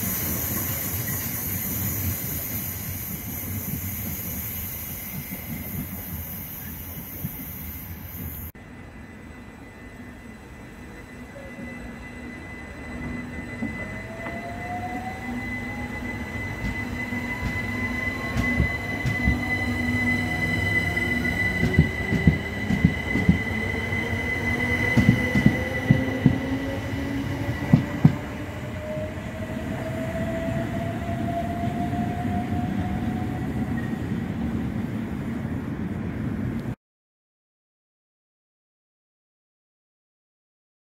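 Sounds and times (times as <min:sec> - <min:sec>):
steady high tone: 0:07.7 - 0:34.1
electric train motor whine: 0:08.8 - 0:33.4.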